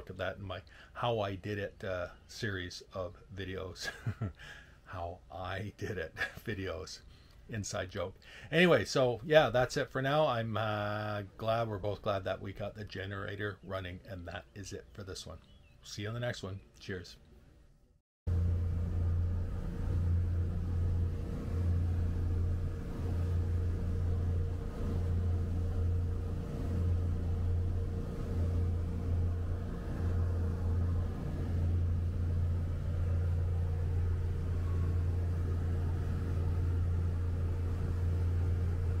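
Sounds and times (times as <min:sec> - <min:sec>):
motor boat engine droning: 0:18.3 - 0:39.0.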